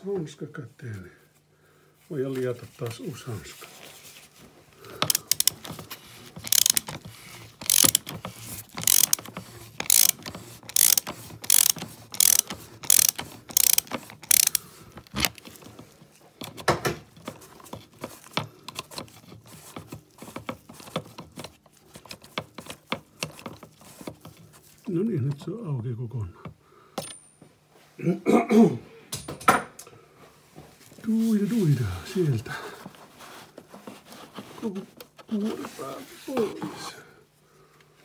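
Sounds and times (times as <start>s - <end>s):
ratchet wrench clicking: 5.0s - 5.8s, 6.4s - 7.0s, 7.6s - 15.4s.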